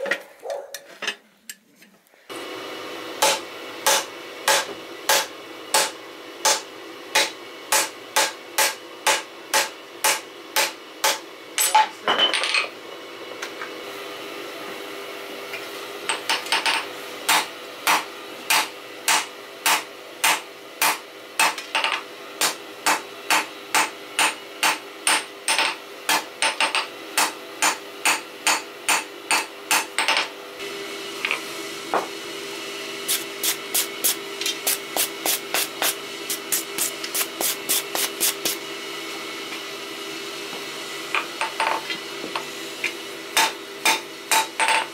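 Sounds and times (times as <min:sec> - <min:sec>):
hammer striking hot steel on anvil: 0:03.2 - 0:11.9, 0:17.3 - 0:30.2, 0:43.4 - 0:44.9.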